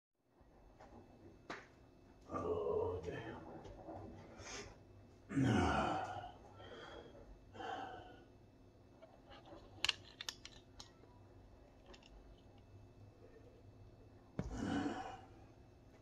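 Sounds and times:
hand handling recording device: 9.0 - 11.1
person exhaling heavily: 14.4 - 15.3.

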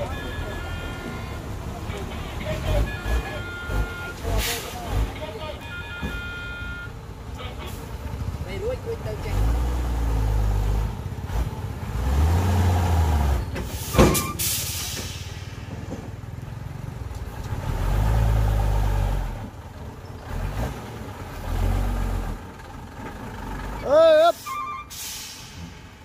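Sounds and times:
diesel truck engine revving: 0.0 - 5.8, 6.5 - 26.0
short sharp hiss: 24.9 - 25.9.

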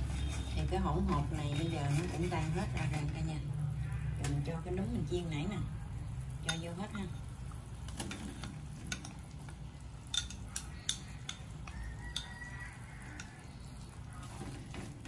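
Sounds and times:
bowl and chopsticks clinking on wok: 10.1 - 11.5.

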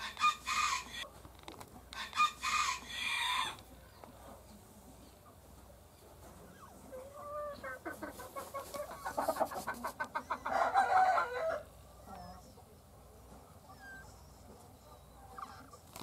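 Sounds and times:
hen clucking and squawking: 0.0 - 1.1, 2.0 - 3.6, 6.4 - 12.7, 13.6 - 16.0.

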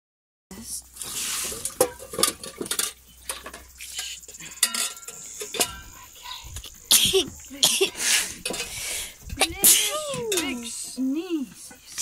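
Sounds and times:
metal bowls clinking: 1.5 - 6.5, 7.6 - 12.0.

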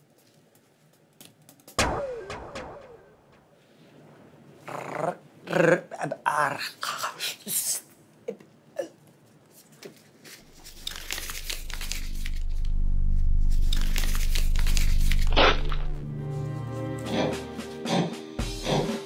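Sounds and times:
paper crinkling and rustling: 9.2 - 16.0
sharp crackle: 10.4 - 16.0
low drone: 10.5 - 16.5.

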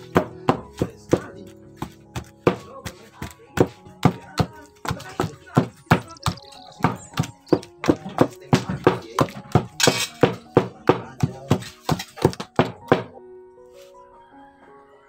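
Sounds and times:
light background music: 0.0 - 15.0
masher thunking in metal bowl: 3.6 - 13.1.

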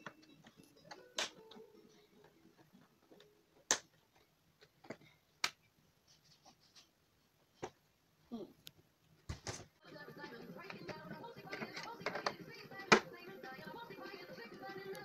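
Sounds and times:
plastic parts clicking: 0.0 - 5.6, 10.7 - 13.1.

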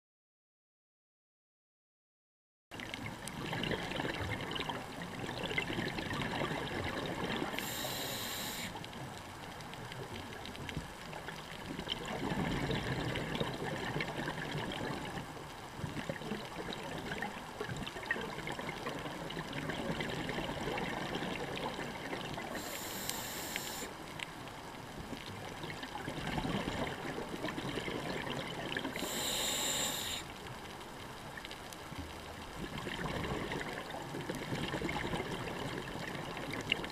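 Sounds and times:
underwater bubbles gurgling: 2.7 - 36.9
short high hisses: 7.6 - 8.8, 22.6 - 23.9, 29.0 - 30.3.

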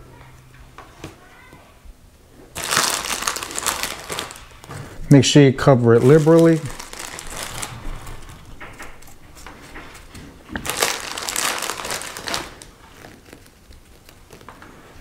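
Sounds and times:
plastic bag crinkling: 2.5 - 4.9, 5.6 - 14.5.

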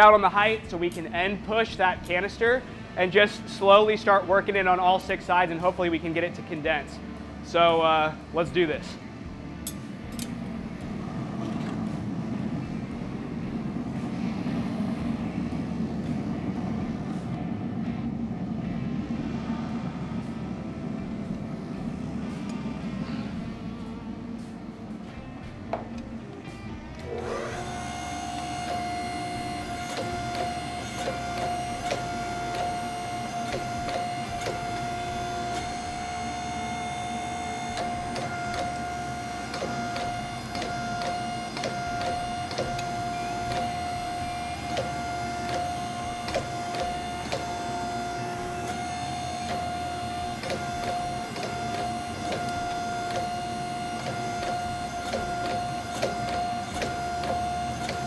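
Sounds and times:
hydraulic press whining: 25.7 - 58.0.

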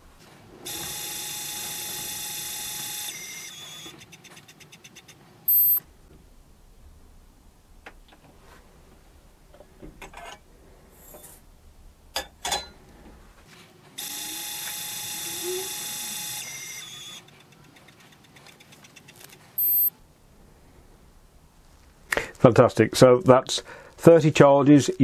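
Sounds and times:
short electronic beep: 5.5 - 5.8, 19.6 - 19.9.

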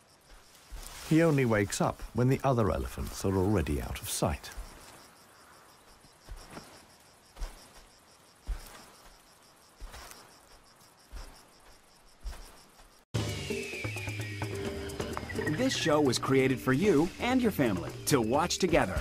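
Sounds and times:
elephant footfalls in dry grass: 0.0 - 13.1
crickets chirring: 0.0 - 19.0
music jingle: 13.2 - 19.0.

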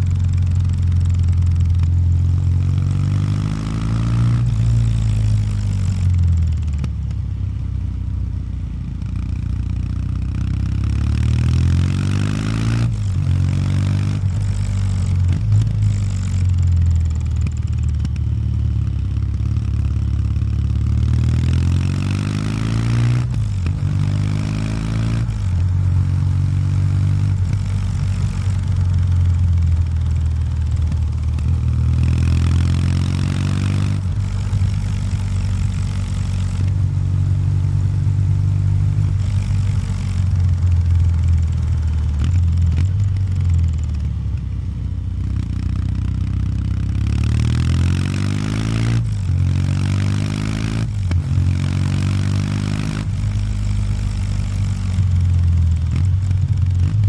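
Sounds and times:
motorcycle engine accelerating: 0.0 - 57.0.

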